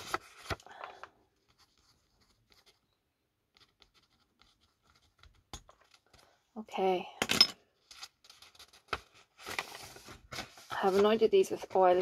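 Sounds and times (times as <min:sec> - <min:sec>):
paper rustling: 0:00.0 - 0:02.8, 0:07.8 - 0:12.0.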